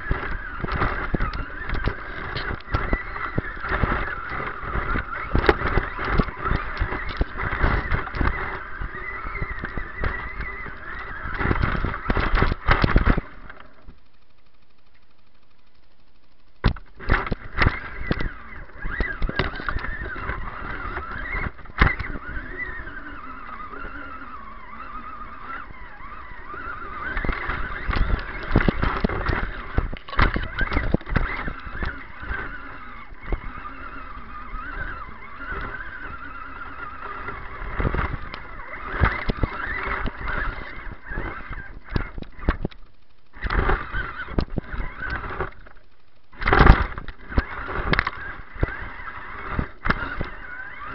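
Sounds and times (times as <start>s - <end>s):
electric motor whining: 0.0s - 50.9s
knocks and rattles in brush: 26.5s - 45.8s.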